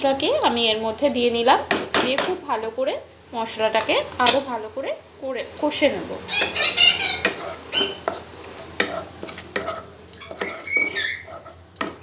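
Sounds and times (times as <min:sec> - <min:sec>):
paste sizzling in oil: 0:05.8 - 0:12.0
spatula scraping pan: 0:06.0 - 0:12.0
spatula knocking against pan: 0:07.2 - 0:11.0.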